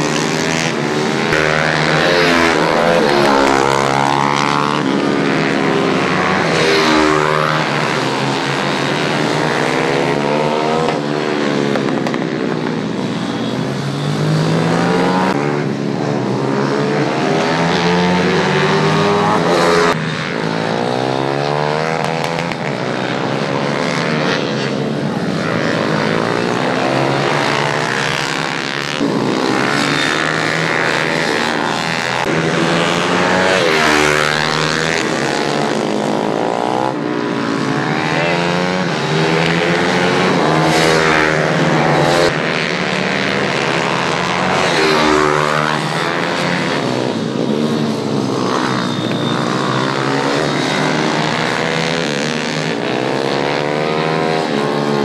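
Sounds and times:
small motorcycle engines revving: 0.0 - 55.0.

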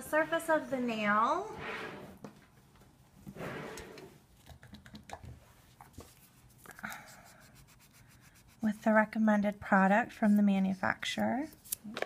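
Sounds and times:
pad rubbing on a nail: 6.1 - 8.9.

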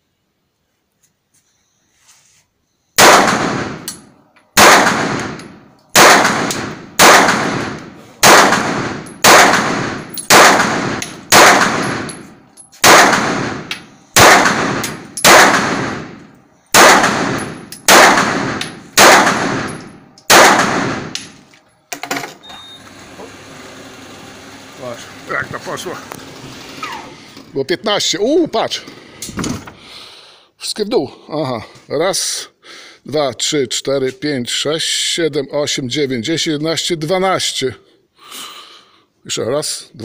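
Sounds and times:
pistol shots indoors: 3.0 - 12.2, 12.8 - 21.4.

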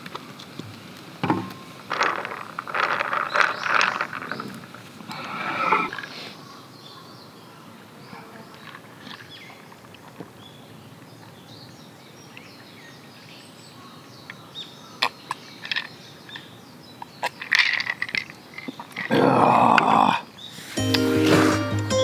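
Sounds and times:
faint bird chirps: 3.2 - 20.8.

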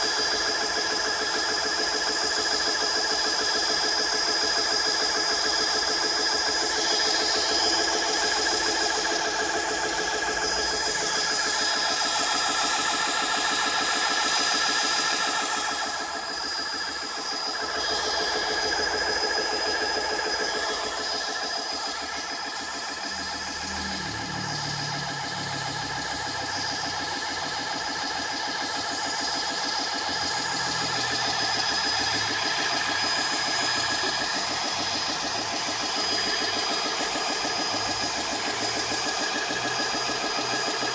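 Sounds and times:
electric air pump pulsing: 0.0 - 40.9
thin high whine: 4.9 - 28.1.

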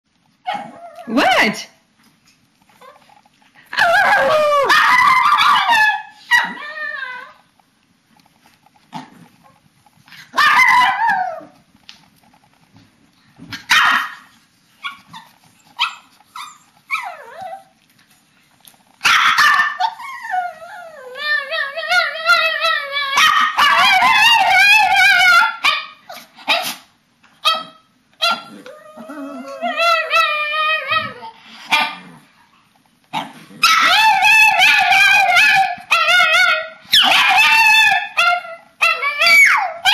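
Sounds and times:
dogs howling vocalizations: 3.7 - 7.4, 10.3 - 11.6, 19.1 - 25.6, 28.3 - 31.4, 33.6 - 39.9
dogs barking: 3.8 - 6.7, 10.3 - 11.1, 13.6 - 14.2, 19.0 - 20.0, 33.6 - 39.9.

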